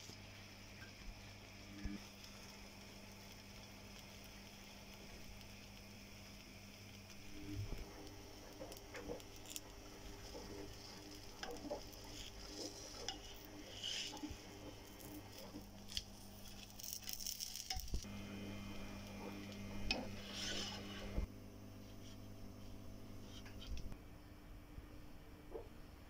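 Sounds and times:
pancake sizzling on iron pan: 0:00.0 - 0:21.3
metal spatula scraping pan: 0:09.2 - 0:15.6, 0:19.9 - 0:21.2.

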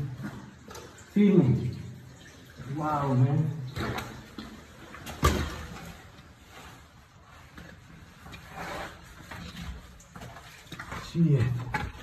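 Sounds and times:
clothing brushing rock walls: 0:06.3 - 0:12.0
shoes and hands scraping rock: 0:08.2 - 0:09.6.

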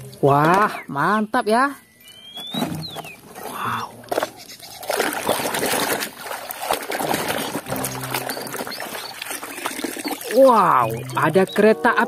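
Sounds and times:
water sloshing and splashing: 0:02.4 - 0:11.6
water dripping: 0:03.4 - 0:12.0.

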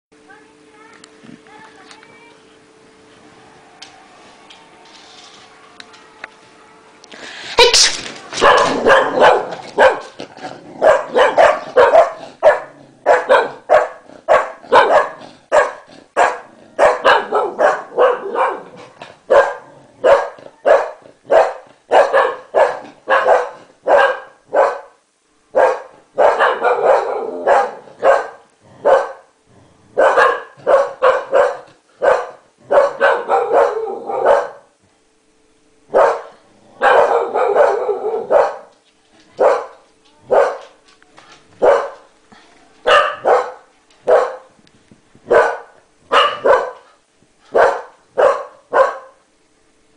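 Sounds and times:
dog barking rapidly: 0:07.6 - 0:10.2, 0:10.8 - 0:24.9, 0:25.6 - 0:29.2, 0:30.0 - 0:34.7, 0:35.9 - 0:38.7, 0:39.4 - 0:40.6, 0:41.6 - 0:42.0, 0:42.9 - 0:44.5, 0:45.3 - 0:46.8, 0:47.6 - 0:49.2.

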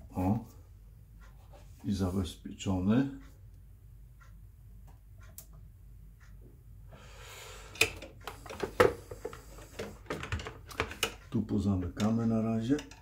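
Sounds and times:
plastic fittings clicking and knocking: 0:07.8 - 0:13.0.

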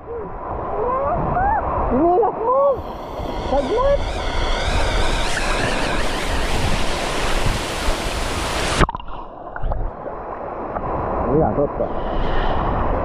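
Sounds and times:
waterfall rushing: 0:00.9 - 0:09.5.

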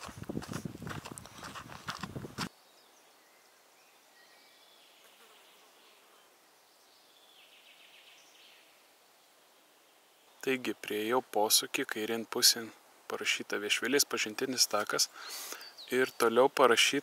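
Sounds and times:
footsteps on dirt track: 0:00.0 - 0:02.5.

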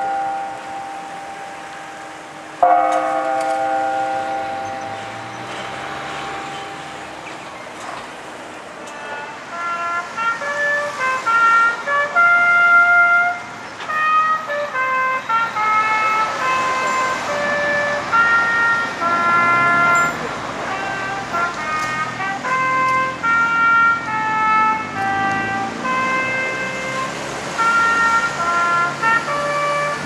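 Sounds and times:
tower clock bell ringing: 0:00.0 - 0:07.2
clock tower tune: 0:00.0 - 0:07.6, 0:08.8 - 0:30.0.

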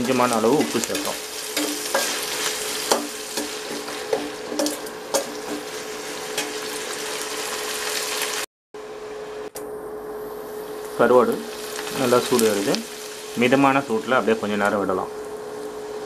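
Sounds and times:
skimmer scraping against pan: 0:00.0 - 0:07.5
fish sizzling in hot oil: 0:00.0 - 0:08.5, 0:10.8 - 0:14.6.

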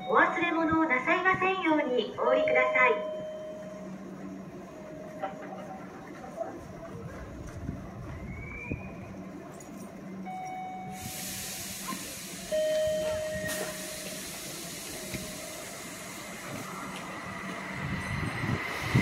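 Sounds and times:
high train squeal: 0:08.0 - 0:09.2, 0:10.8 - 0:16.8
train rushing hiss: 0:10.9 - 0:19.0.

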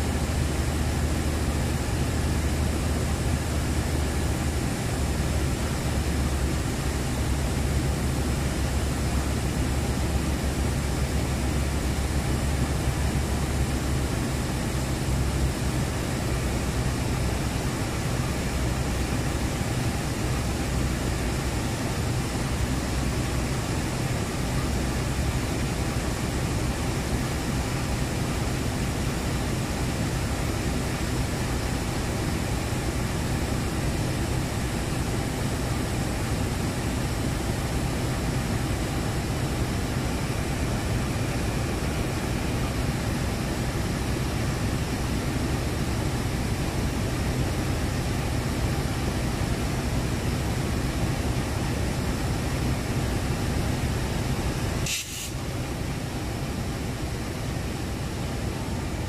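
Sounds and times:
locomotive engine humming: 0:00.0 - 0:59.0
constant hiss: 0:52.7 - 0:58.8.

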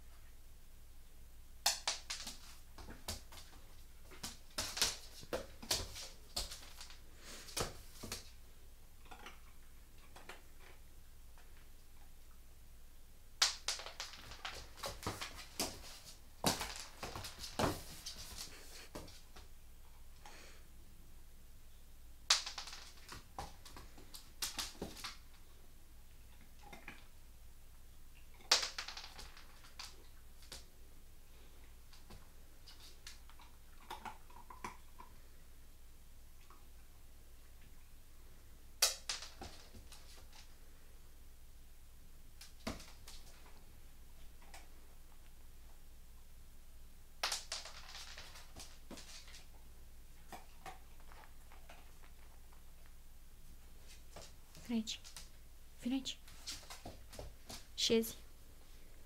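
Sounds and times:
dog claws clicking on floor: 0:01.6 - 0:08.3, 0:13.4 - 0:19.5, 0:22.3 - 0:25.4, 0:28.4 - 0:30.7, 0:38.8 - 0:40.5, 0:47.2 - 0:49.6, 0:56.3 - 0:57.7
sharp cracks: 0:13.4 - 0:15.8, 0:22.3 - 0:25.2.

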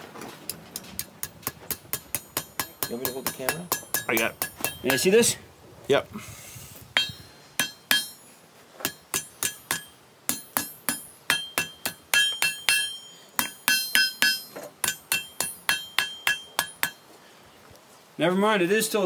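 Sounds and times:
hammer striking iron on anvil: 0:00.8 - 0:05.1, 0:07.0 - 0:17.0
anvil ringing: 0:01.0 - 0:05.1, 0:07.0 - 0:17.0.

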